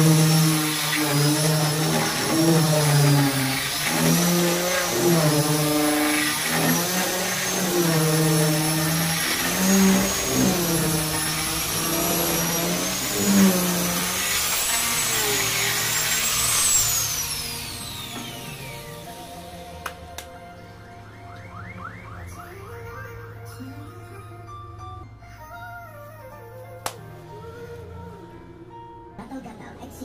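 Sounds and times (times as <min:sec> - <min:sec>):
grinder spinning down: 0:00.0 - 0:20.3
angle grinder sanding wood: 0:00.0 - 0:20.4.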